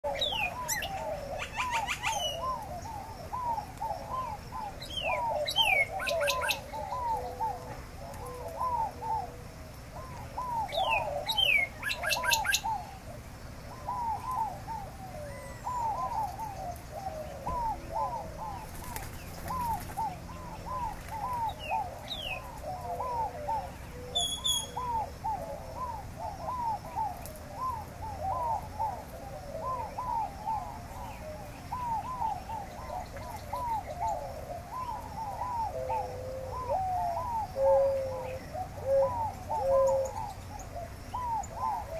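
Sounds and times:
birds calling: 0:00.0 - 0:41.9
high bird chirps and trills: 0:00.1 - 0:07.4, 0:10.0 - 0:13.0, 0:13.7 - 0:29.0.

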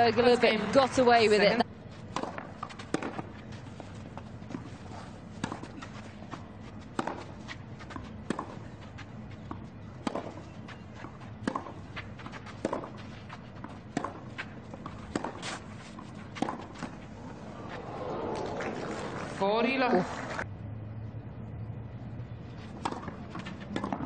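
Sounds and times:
tennis ball struck by racket: 0:02.1 - 0:03.3, 0:05.4 - 0:05.8, 0:06.9 - 0:08.6, 0:09.5 - 0:10.4, 0:11.0 - 0:13.0, 0:13.6 - 0:17.0, 0:22.8 - 0:24.0.

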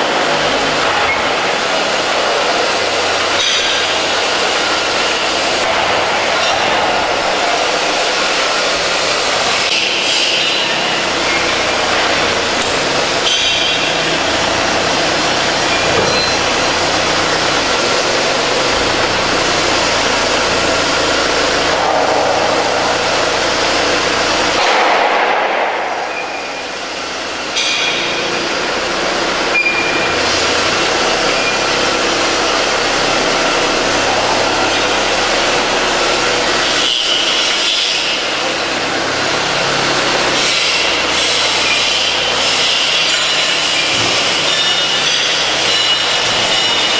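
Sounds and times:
machinery and engine noise: 0:00.0 - 0:46.9
sharp knocks: 0:24.5 - 0:26.6.

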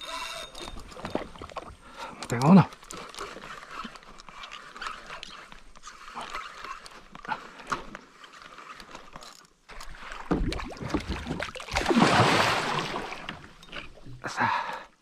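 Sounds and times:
light water sounds: 0:00.0 - 0:15.0
fish splashing at surface: 0:10.2 - 0:13.3.

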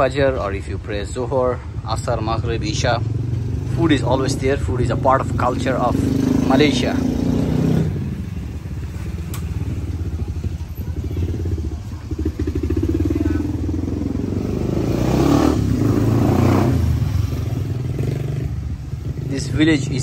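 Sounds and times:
passing traffic: 0:00.0 - 0:20.0
motorcycle engine putter: 0:08.8 - 0:10.6.

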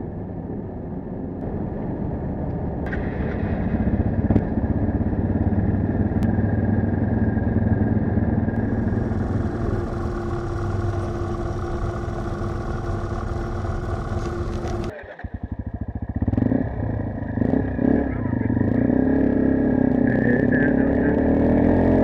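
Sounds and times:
motorcycle engine idling: 0:03.1 - 0:21.0
higher tone: 0:06.1 - 0:15.0.

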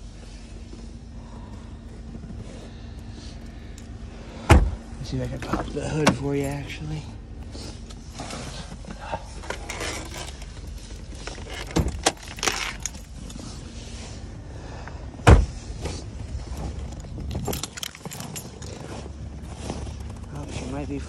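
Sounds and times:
low background rumble: 0:00.0 - 0:21.0
heavy thump: 0:04.4 - 0:04.9, 0:15.2 - 0:16.0.

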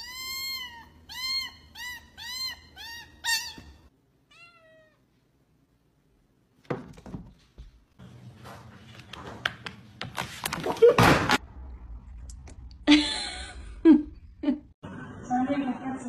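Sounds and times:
kitten meowing: 0:00.0 - 0:05.0.

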